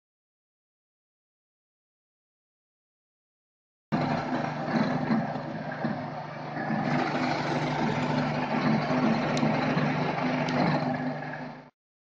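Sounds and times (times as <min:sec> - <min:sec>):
end mill cutting metal: 0:03.9 - 0:11.7
milling machine motor hum: 0:03.9 - 0:11.7.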